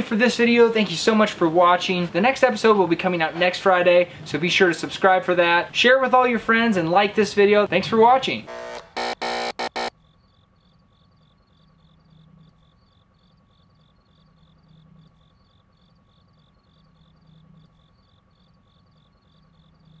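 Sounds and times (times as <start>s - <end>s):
faint low hum: 8.4s - 20.0s
faint cricket chirping: 9.6s - 20.0s.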